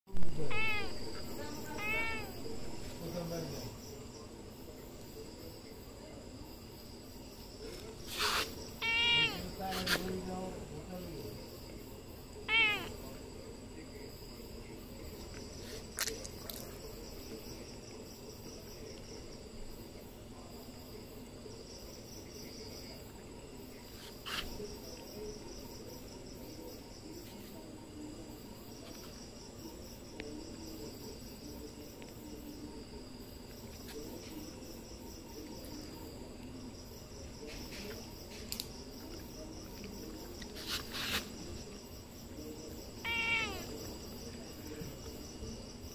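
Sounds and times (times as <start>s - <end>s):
crickets chirping: 0.1s - 45.9s
kitten meowing: 0.3s - 2.8s, 8.8s - 9.5s, 12.5s - 13.0s, 43.0s - 43.7s.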